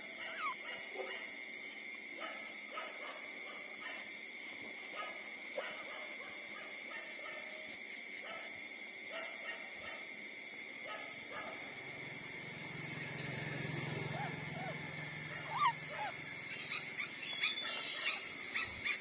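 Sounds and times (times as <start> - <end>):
steady high-pitched hum: 0.0 - 19.0
puppies squeaking and whimpering: 0.3 - 0.6, 14.0 - 19.0.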